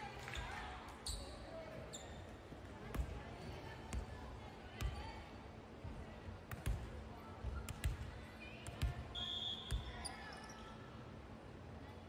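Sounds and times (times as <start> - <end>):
balls thudding on gym floor: 6.4 - 9.0.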